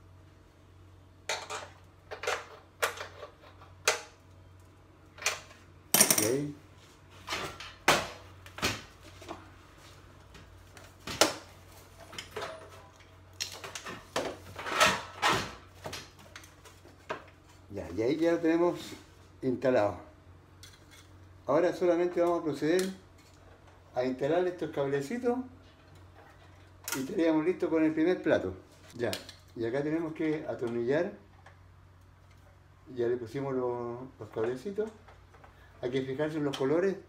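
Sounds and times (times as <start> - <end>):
metal hardware clinking: 6.0 - 6.5.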